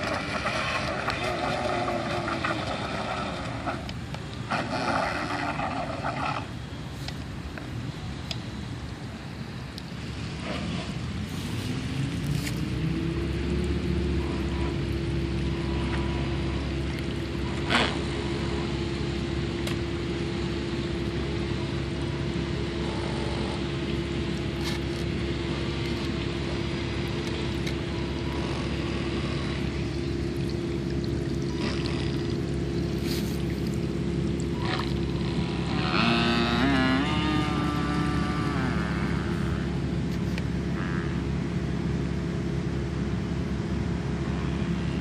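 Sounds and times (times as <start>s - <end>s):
low hum: 0.0s - 45.0s
electric motor whine: 34.6s - 40.0s.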